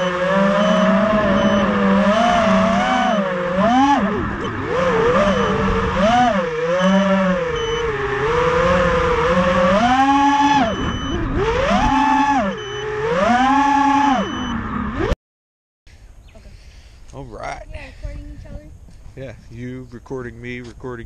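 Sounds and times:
drone motors whining: 0:00.0 - 0:15.2.

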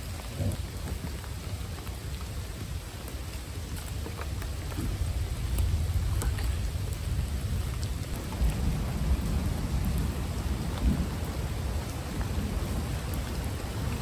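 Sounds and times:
rain falling: 0:00.0 - 0:14.0
sharp raindrop ticks: 0:00.0 - 0:14.0
rumble of thunder: 0:04.3 - 0:14.0.

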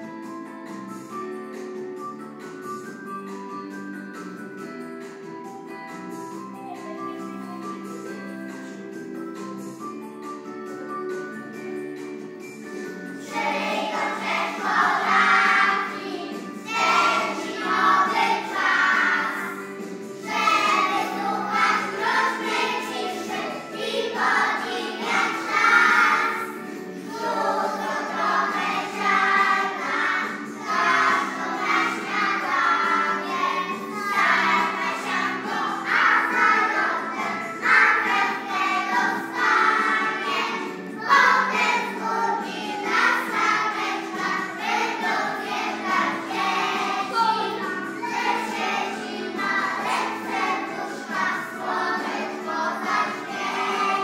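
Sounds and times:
instrumental accompaniment: 0:00.2 - 0:54.0
children singing: 0:12.8 - 0:54.0.

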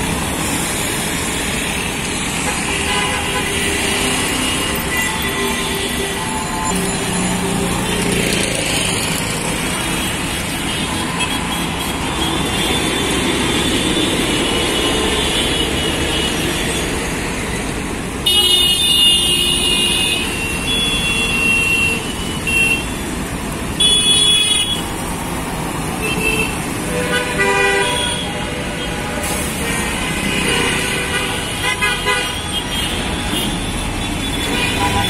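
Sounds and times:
dense city traffic: 0:00.0 - 0:35.0
loud bus horn blaring: 0:02.4 - 0:06.7, 0:18.2 - 0:23.0, 0:23.8 - 0:24.9, 0:26.0 - 0:35.0.

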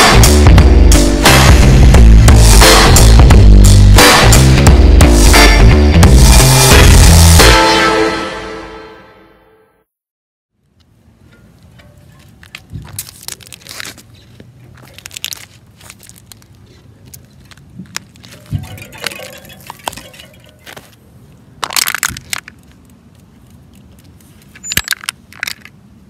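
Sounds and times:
bicycle tyre crunching objects: 0:12.8 - 0:14.2, 0:14.8 - 0:18.5.

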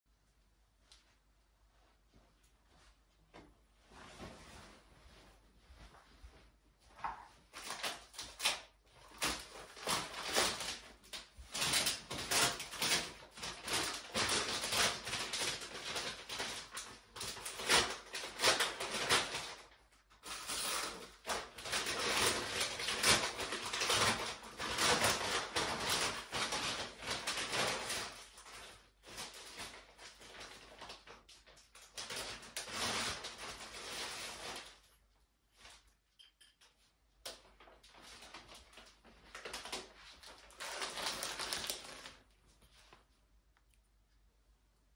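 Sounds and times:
plastic wrap crinkling: 0:03.9 - 0:36.0, 0:37.2 - 0:43.6.

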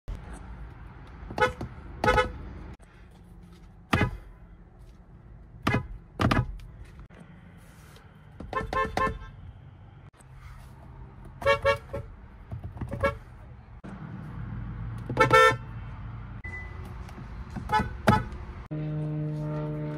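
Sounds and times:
car horn beeps: 0:01.3 - 0:02.4, 0:08.4 - 0:09.4, 0:11.4 - 0:12.1, 0:15.1 - 0:15.7, 0:16.4 - 0:16.9, 0:17.6 - 0:19.9.

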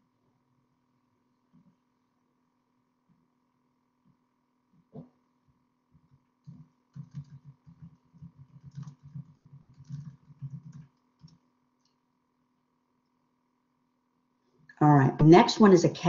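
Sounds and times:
computer keyboard tapping: 0:06.0 - 0:11.4.

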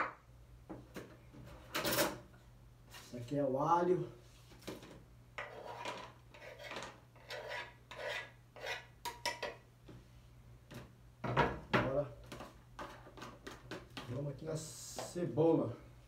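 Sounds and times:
knife scraping cutting board: 0:05.4 - 0:08.9.

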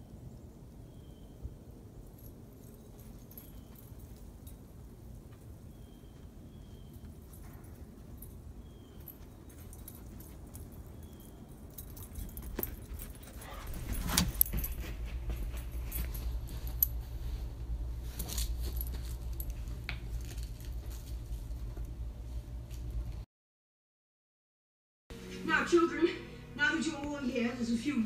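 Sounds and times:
low hum: 0:00.0 - 0:23.2
collar tags jingling: 0:00.7 - 0:23.0
puppy chewing and gnawing: 0:02.3 - 0:23.2.

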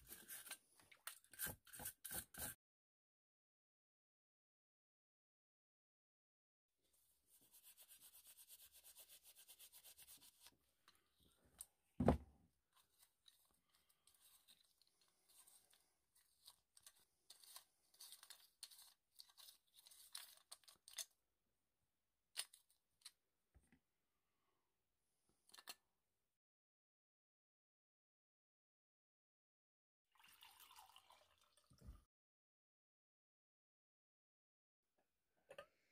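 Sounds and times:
thump: 0:12.0 - 0:12.3.

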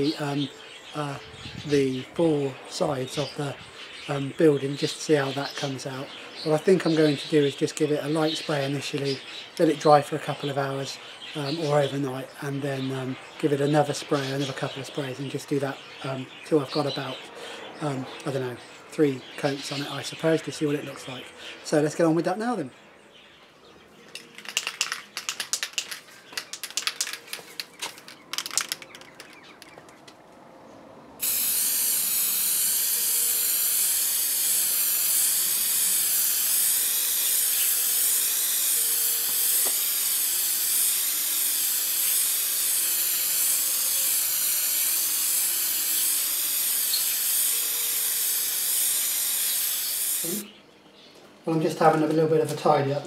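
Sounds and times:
aerosol can rattling: 0:24.1 - 0:29.8, 0:31.2 - 0:50.4
spray can hissing: 0:24.2 - 0:29.3, 0:31.2 - 0:50.5.

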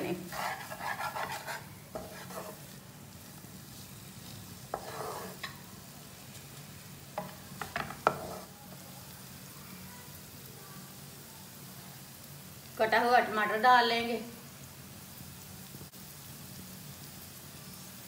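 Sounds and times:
spatula scraping frying pan: 0:00.0 - 0:02.8, 0:03.7 - 0:05.7, 0:07.2 - 0:08.5
faint sizzle: 0:00.0 - 0:18.0.

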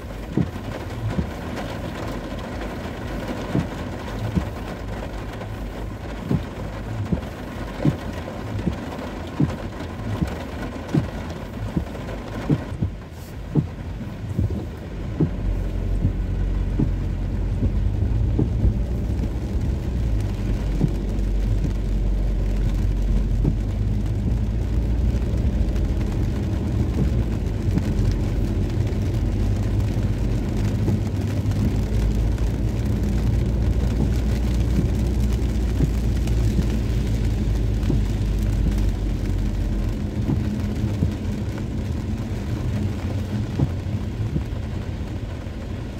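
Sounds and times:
moving vehicle rumble: 0:00.0 - 0:45.9
rain: 0:00.0 - 0:45.9.

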